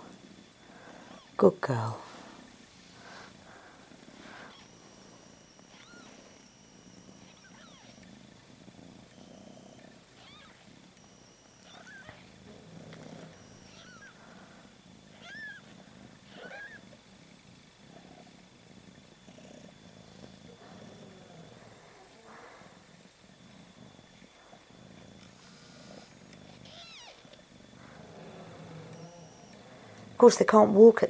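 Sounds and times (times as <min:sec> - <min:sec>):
cat purring faintly: 0:00.0 - 0:31.0
cat squeaky mews: 0:05.7 - 0:06.2, 0:07.3 - 0:07.9, 0:10.2 - 0:10.6, 0:11.6 - 0:12.3, 0:13.6 - 0:14.1, 0:15.2 - 0:15.6, 0:16.3 - 0:16.8, 0:26.6 - 0:27.2.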